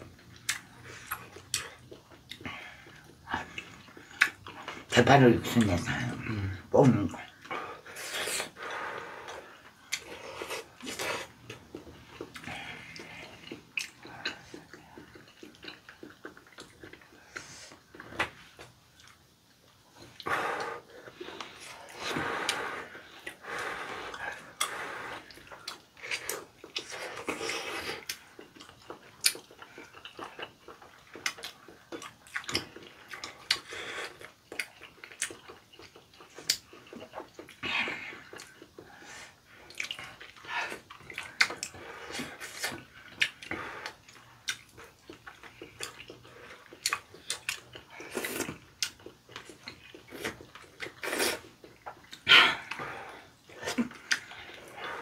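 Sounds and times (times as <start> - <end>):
wet slurping and mouth smacking: 20.0 - 52.9.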